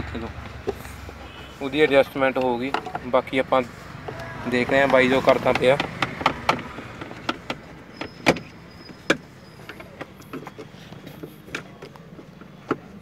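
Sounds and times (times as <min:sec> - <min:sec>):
clicks and knocks of gear lever: 0:04.1 - 0:13.0.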